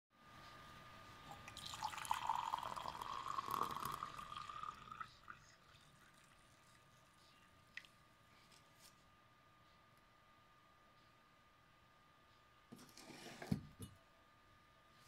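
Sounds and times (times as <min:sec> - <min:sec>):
water pouring into mug: 0:01.3 - 0:07.2.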